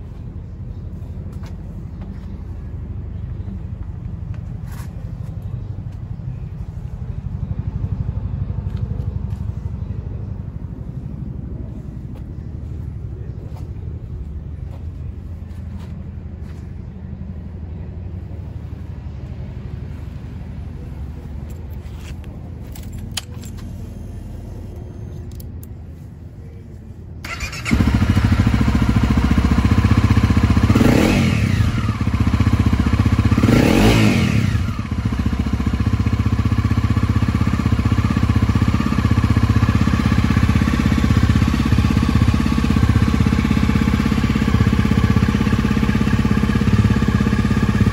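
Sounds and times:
motorcycle engine starting and idling: 0.1s - 18.6s, 20.7s - 25.8s, 27.2s - 47.9s
engine revving: 27.2s - 35.7s.

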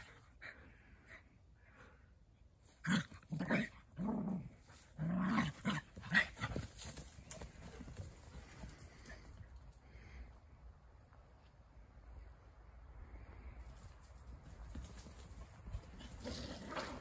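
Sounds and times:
dogs growling: 15.9s - 17.0s.

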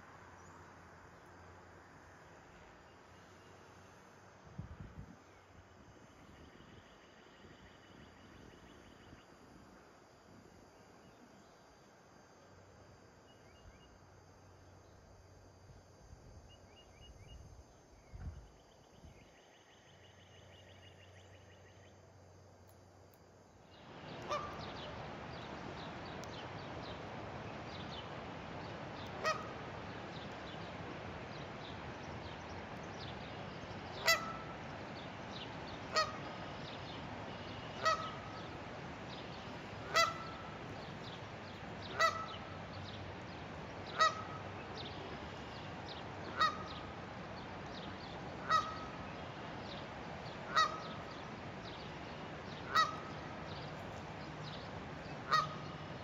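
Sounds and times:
steady background hiss: 0.0s - 56.0s
goose honking: 24.1s - 24.9s, 29.1s - 29.6s, 34.0s - 34.6s, 35.9s - 36.3s, 37.8s - 38.6s, 39.8s - 40.6s, 41.9s - 42.5s, 43.9s - 44.5s, 46.3s - 46.8s, 48.4s - 49.0s, 50.4s - 51.1s, 52.6s - 53.2s, 55.2s - 55.8s.

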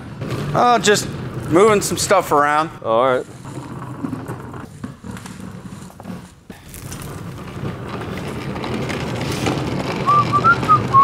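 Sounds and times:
workshop handling noise: 0.0s - 11.0s
person whistling: 10.1s - 11.0s.

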